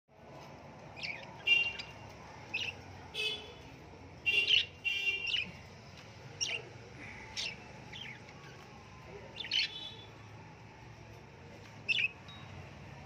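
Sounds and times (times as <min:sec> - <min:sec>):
budgerigars chirping: 0:01.0 - 0:02.8, 0:04.3 - 0:05.6, 0:06.4 - 0:08.2, 0:09.4 - 0:10.0, 0:11.8 - 0:12.2.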